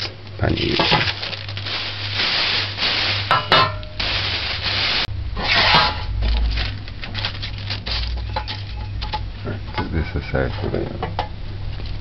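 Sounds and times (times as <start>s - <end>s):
paper rustling against metal pan: 0.0s - 9.2s.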